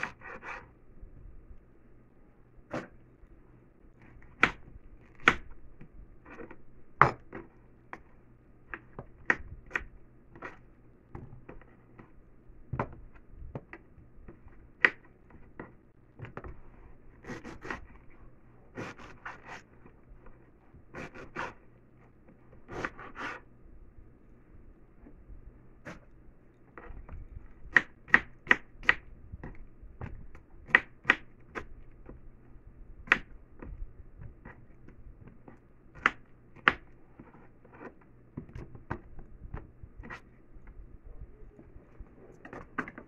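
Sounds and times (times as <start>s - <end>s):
knife slicing and scraping: 0.0s - 0.7s, 22.7s - 23.5s.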